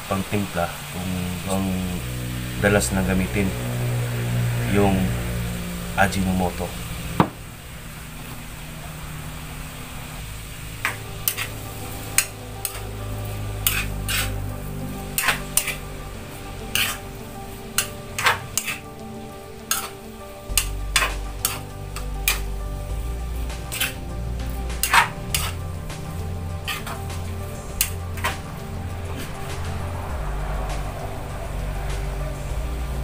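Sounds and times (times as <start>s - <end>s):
low sizzle: 0.0s - 33.0s
metal spatula clanking in wok: 13.6s - 14.3s.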